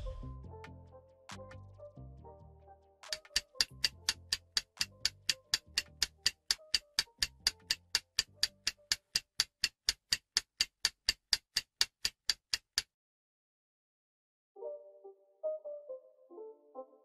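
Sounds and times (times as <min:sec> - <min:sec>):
countdown timer clock ticking: 0:03.0 - 0:12.9.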